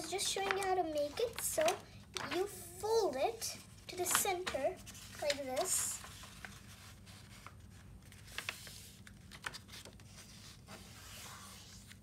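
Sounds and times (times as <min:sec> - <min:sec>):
soft taps and crinkles: 0:00.0 - 0:02.4
paper rustling and folding: 0:00.0 - 0:12.0.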